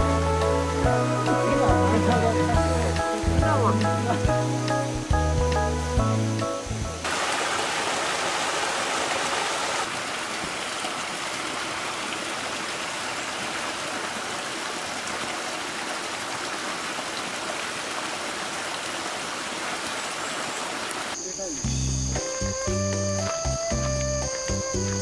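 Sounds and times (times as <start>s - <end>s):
stream water rushing into pool: 7.0s - 21.2s.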